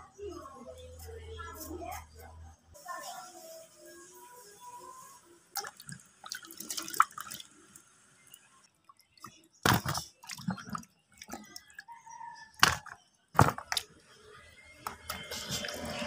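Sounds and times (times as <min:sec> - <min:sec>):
fruit splashing in water basin: 0:05.6 - 0:07.6, 0:09.0 - 0:11.7.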